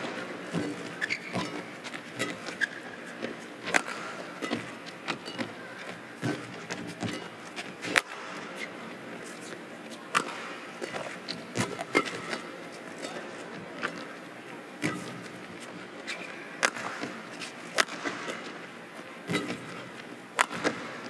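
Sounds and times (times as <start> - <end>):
rackets striking shuttlecock: 3.7 - 8.5, 10.1 - 13.2, 14.8 - 15.3, 16.6 - 18.6, 19.2 - 21.0.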